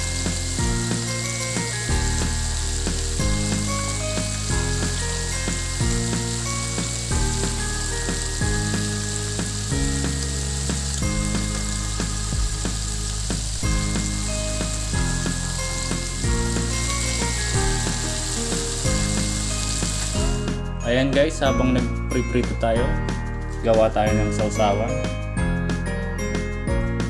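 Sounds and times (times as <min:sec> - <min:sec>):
squid deep-frying in oil: 0:00.0 - 0:20.6
background music: 0:00.0 - 0:27.0.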